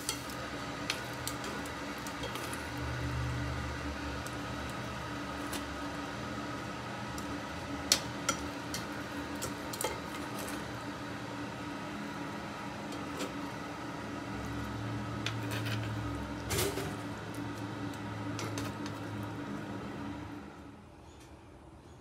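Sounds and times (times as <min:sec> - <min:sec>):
tongs clicking on pan: 0:07.9 - 0:10.0.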